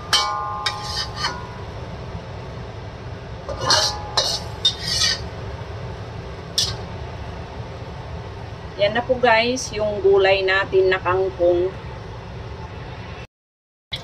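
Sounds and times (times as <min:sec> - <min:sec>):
metal spatula scraping wok: 0:00.0 - 0:01.7, 0:03.5 - 0:05.4, 0:06.5 - 0:06.9
steady low hum: 0:00.0 - 0:13.3.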